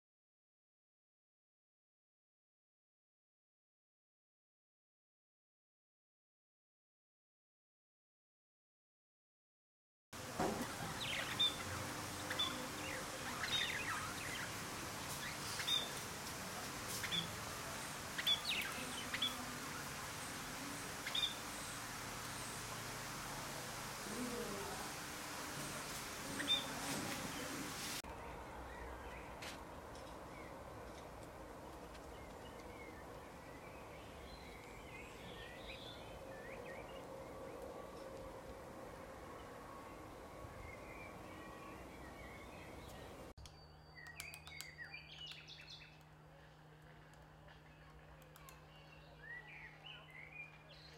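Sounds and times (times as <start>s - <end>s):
faint hiss: 10.2s - 28.0s
small songbirds twittering: 10.2s - 29.4s, 31.6s - 38.0s, 39.4s - 46.1s, 48.2s - 50.9s
low background hum: 10.2s - 50.9s
budgerigars chirping: 10.8s - 16.1s, 18.0s - 22.3s.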